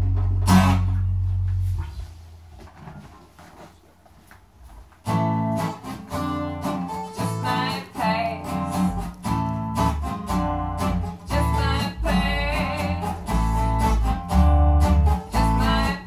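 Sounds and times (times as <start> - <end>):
acoustic guitar strumming: 0.0 - 1.8, 5.0 - 16.0
bass guitar: 0.0 - 3.1, 5.0 - 16.0
woman singing: 6.4 - 9.0, 11.2 - 13.5, 15.3 - 16.0.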